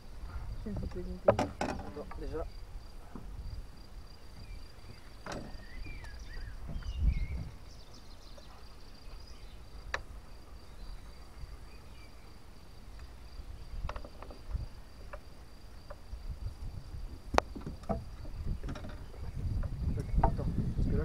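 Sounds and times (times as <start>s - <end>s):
bumps and knocks on boat: 0.7s - 2.4s, 4.2s - 8.6s, 17.0s - 20.6s
bird chirps: 4.3s - 9.8s, 10.5s - 13.8s.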